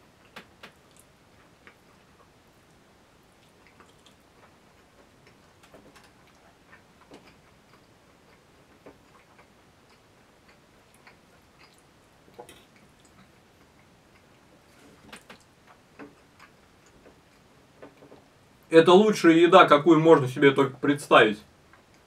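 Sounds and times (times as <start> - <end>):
chewing: 0.2 - 18.2.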